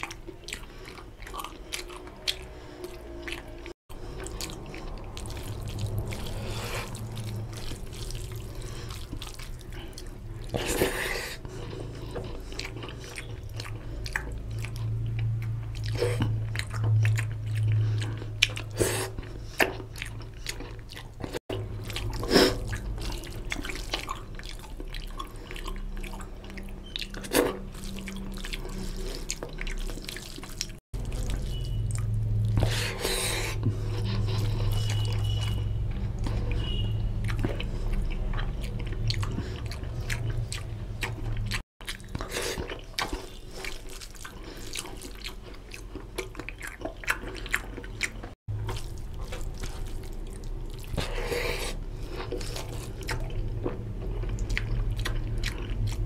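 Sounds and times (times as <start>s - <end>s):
chewing: 0.0s - 56.0s
hand squelching rice and curry: 4.0s - 16.4s, 41.8s - 55.3s.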